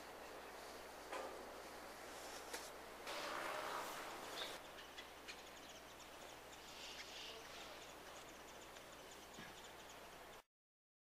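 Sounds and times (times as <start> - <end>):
low steady stream background: 0.0 - 10.4
distant bird chirps: 3.1 - 10.4.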